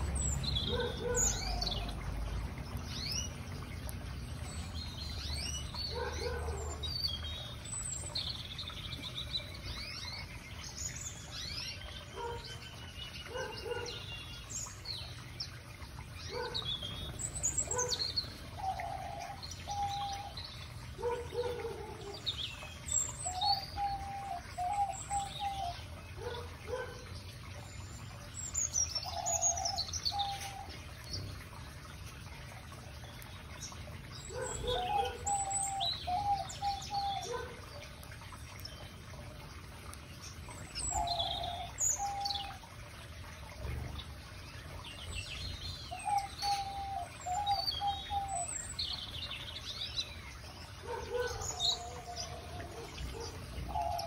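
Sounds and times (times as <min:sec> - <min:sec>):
finches and canaries chirping: 0:00.0 - 0:32.2, 0:32.9 - 0:39.1, 0:40.0 - 0:42.6, 0:43.6 - 0:54.0.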